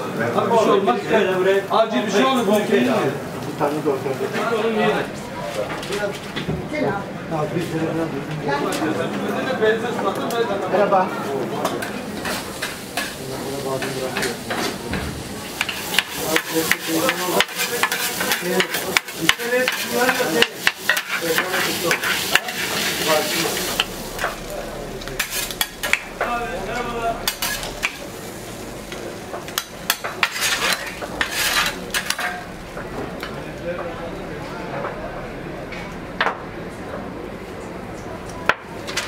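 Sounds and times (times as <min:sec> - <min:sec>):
food frying on griddle: 0:11.7 - 0:33.8
metal spatula scraping: 0:15.6 - 0:24.3, 0:25.1 - 0:26.1, 0:27.2 - 0:28.0, 0:29.9 - 0:32.5.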